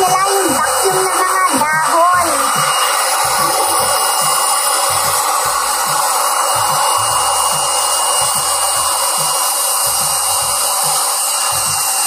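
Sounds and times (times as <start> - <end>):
electric air pump whining: 0.0 - 12.0.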